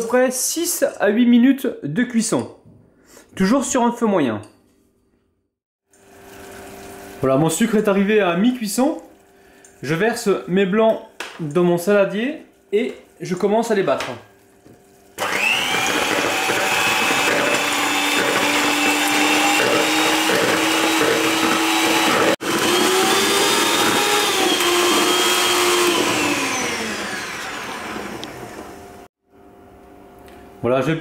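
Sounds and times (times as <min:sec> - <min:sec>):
electric hand mixer whining: 0:15.2 - 0:29.1.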